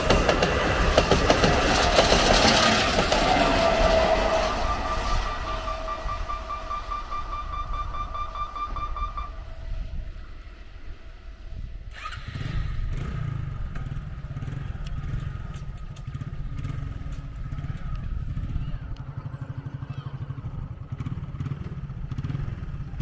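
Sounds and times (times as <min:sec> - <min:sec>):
rapidly pulsing high tone: 0:00.0 - 0:11.0
motorcycle engines idling: 0:00.0 - 0:23.0
steady high tone: 0:01.9 - 0:11.7.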